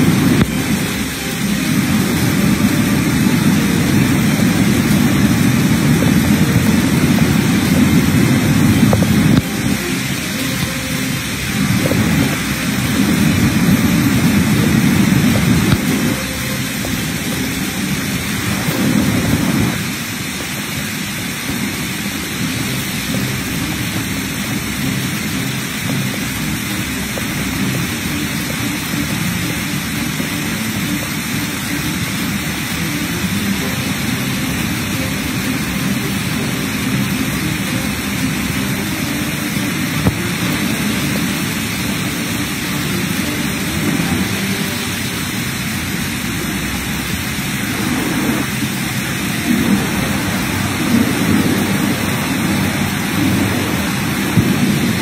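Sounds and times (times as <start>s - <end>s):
floodwater rushing: 0.0s - 55.0s
heavy rain falling: 0.0s - 55.0s.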